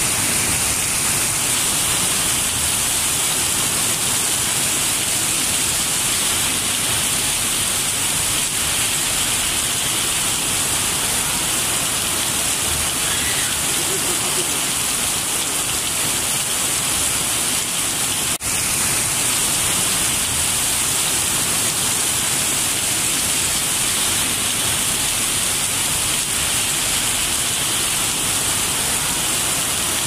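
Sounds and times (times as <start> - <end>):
heavy rain on pavement: 0.0 - 30.0.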